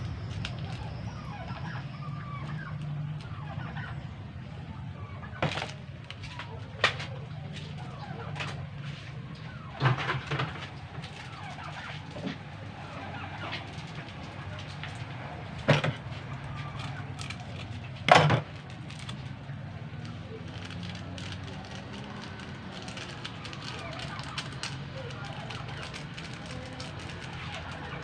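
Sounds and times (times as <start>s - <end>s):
chickens clucking and squawking: 0.7s - 5.8s.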